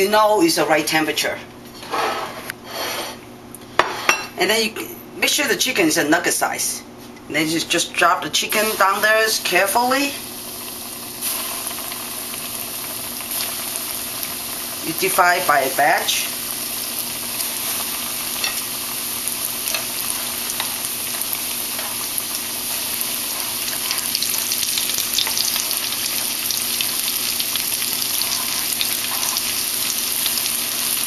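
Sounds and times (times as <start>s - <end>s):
chicken deep-frying in oil: 8.6s - 31.0s.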